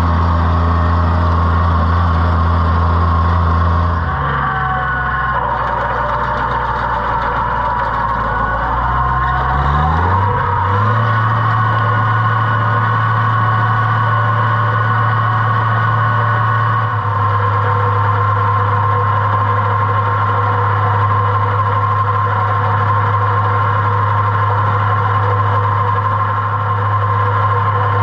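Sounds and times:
tractor engine running: 0.0 - 28.0.

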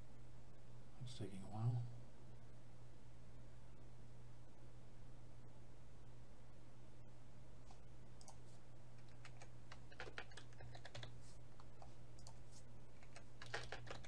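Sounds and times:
steady low hum: 0.0 - 14.0
keyboard typing: 7.7 - 8.4, 9.0 - 14.0.

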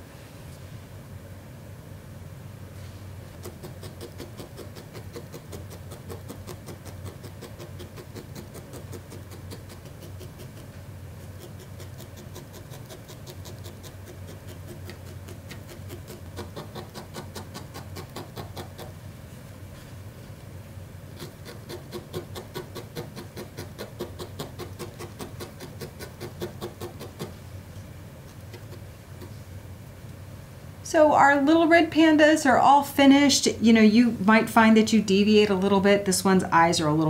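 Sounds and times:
felting needle poking wool: 3.4 - 19.0, 21.1 - 27.4, 28.3 - 29.4.

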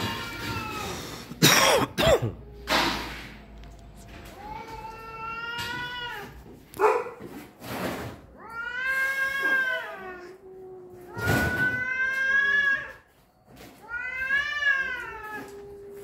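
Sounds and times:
cats yowling: 0.0 - 1.2, 4.3 - 6.5, 8.3 - 13.1, 13.8 - 16.0.

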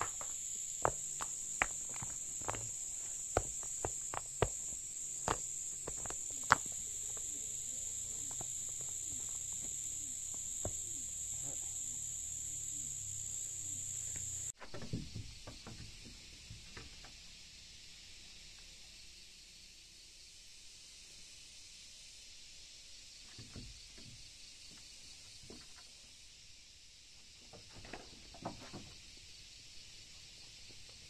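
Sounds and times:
light scuffs: 0.0 - 10.8
stones clacking together: 0.0 - 11.3
sharp knocks of stones: 0.0 - 15.0
high insect drone: 0.0 - 15.8.

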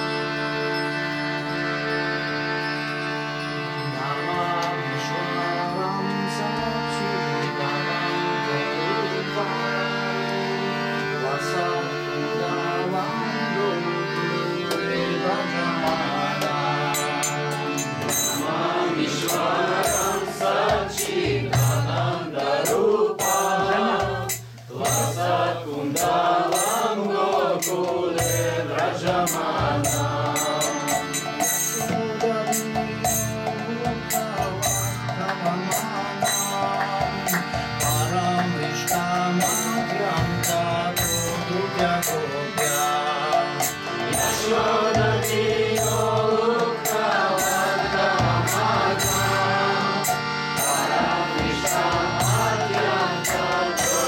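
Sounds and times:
harmonium chords: 0.0 - 54.0
group singing: 4.0 - 54.0
hand drum beating: 15.8 - 18.6, 19.2 - 54.0
small hand cymbals: 17.0 - 18.5.

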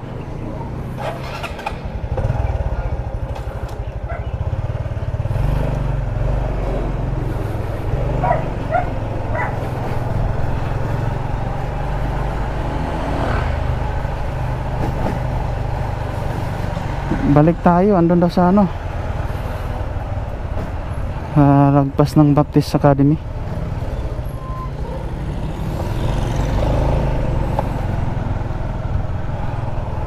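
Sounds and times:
motorcycle engine pulling away: 0.9 - 17.4, 23.9 - 29.9.

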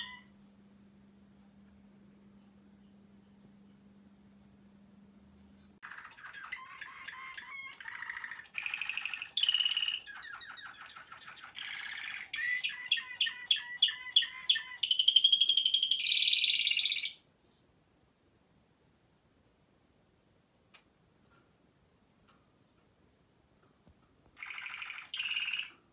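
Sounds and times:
canary singing: 0.0 - 0.4, 5.4 - 17.6, 23.9 - 25.9.

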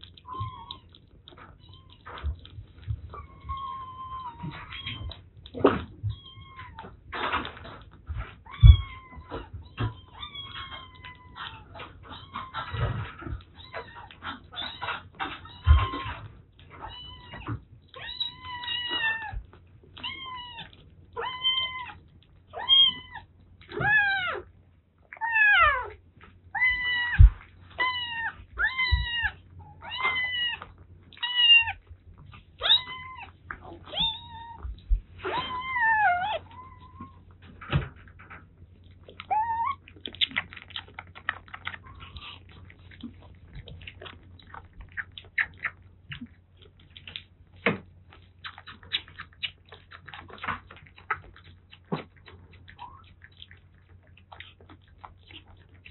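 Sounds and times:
kittens eating from bowls: 0.0 - 55.9
kitten meowing: 0.2 - 1.0, 3.1 - 5.2, 8.4 - 12.9, 16.8 - 19.4, 20.0 - 24.5, 25.1 - 31.8, 32.6 - 37.2.

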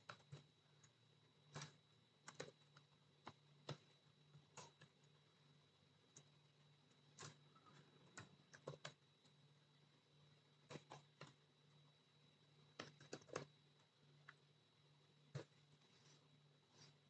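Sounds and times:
typing on computer keyboard: 0.0 - 5.2, 6.1 - 9.4, 12.7 - 13.6
faint low hum: 0.0 - 17.0.

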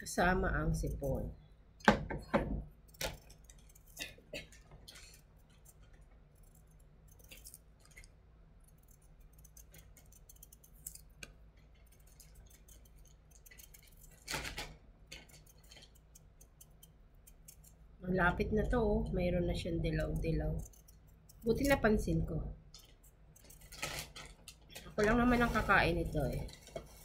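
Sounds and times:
low steady hum: 0.0 - 27.0
knife scraping vegetable skin: 8.7 - 14.6.

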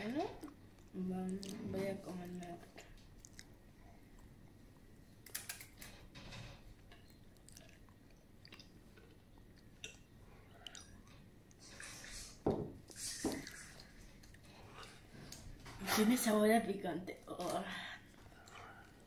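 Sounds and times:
crunching and chewing chip: 7.3 - 10.0
knock: 12.4 - 12.8.

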